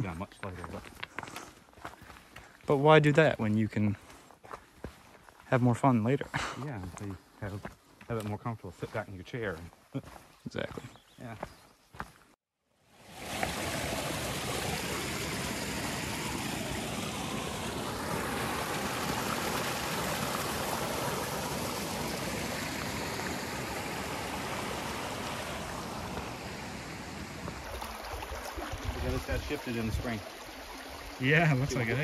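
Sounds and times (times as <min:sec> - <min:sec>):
brook rushing over stones: 0:13.0 - 0:32.0.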